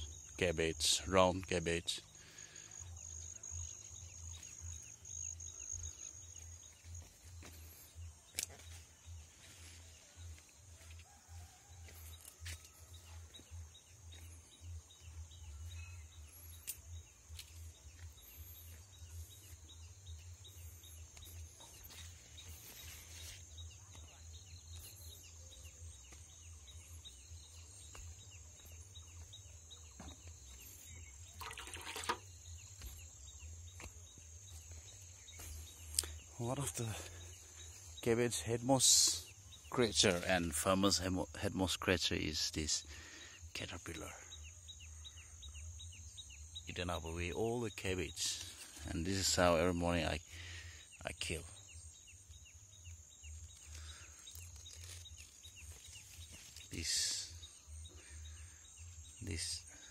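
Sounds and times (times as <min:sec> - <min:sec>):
rustling: 0:53.5 - 0:56.8.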